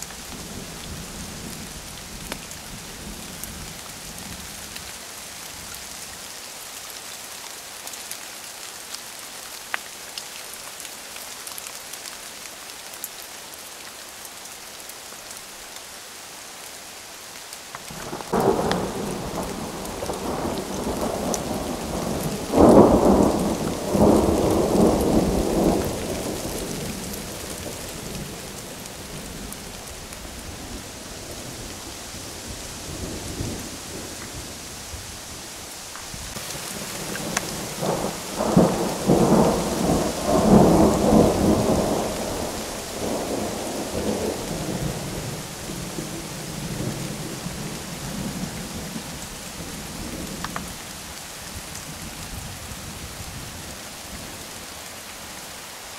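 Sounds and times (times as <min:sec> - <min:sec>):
steady rain falling: 0:00.0 - 0:55.9
rolling thunder: 0:18.1 - 0:28.6, 0:36.3 - 0:49.0.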